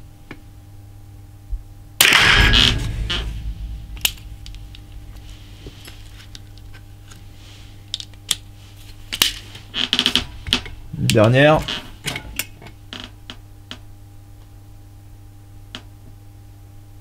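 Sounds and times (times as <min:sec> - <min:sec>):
rifle shot: 0:02.0 - 0:06.4.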